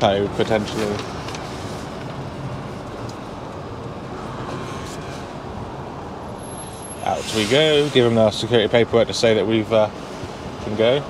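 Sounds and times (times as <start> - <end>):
road and cab noise: 0.0 - 11.0.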